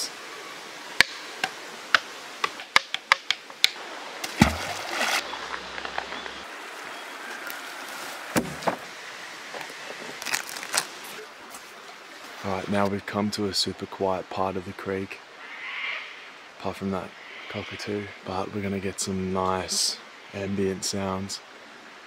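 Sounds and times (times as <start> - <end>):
creek rushing: 0.0 - 22.0
stick knocking on wood: 1.0 - 3.8
deeper wooden thuds: 8.3 - 8.9.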